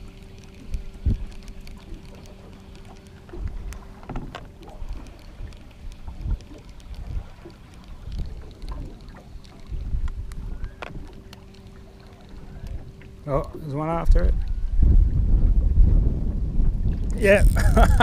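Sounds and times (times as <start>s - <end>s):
wind buffeting microphone: 0.0s - 11.3s, 12.3s - 18.0s
water lapping against boat hull: 0.0s - 18.0s
light clicks: 0.1s - 13.6s.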